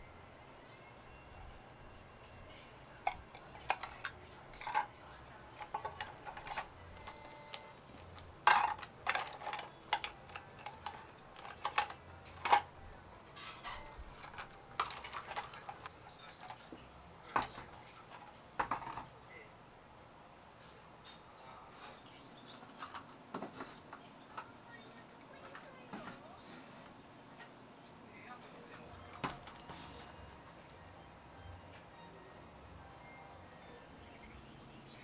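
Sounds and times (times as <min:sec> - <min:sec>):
household items clinking: 0:02.9 - 0:16.8.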